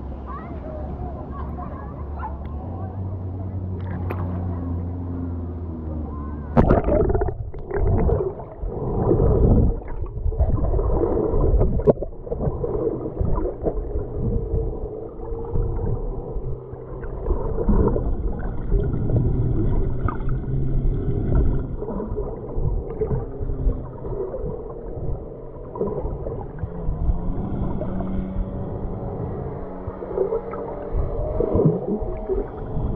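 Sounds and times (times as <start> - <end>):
muffled underwater bubbling: 6.2 - 32.9
splash into water: 6.5 - 12.5.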